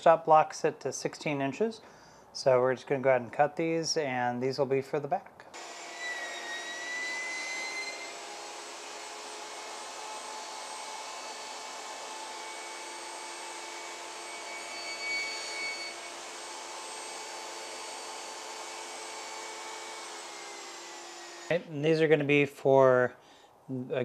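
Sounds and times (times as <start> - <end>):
table saw cutting wood: 5.6 - 21.6.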